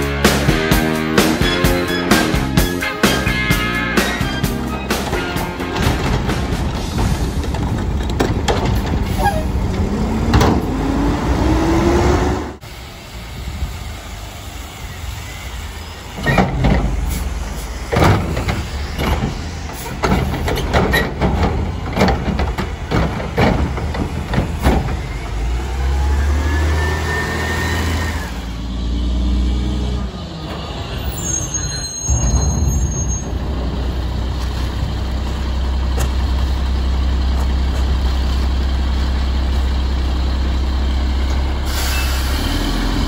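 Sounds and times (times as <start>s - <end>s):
diesel engine revving: 0.0s - 31.5s, 32.2s - 43.0s
cart banging against can: 4.1s - 9.4s, 17.9s - 25.2s.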